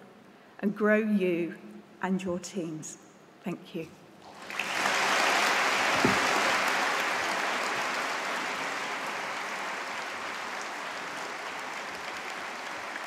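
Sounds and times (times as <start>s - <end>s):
large audience applauding: 4.2s - 13.0s.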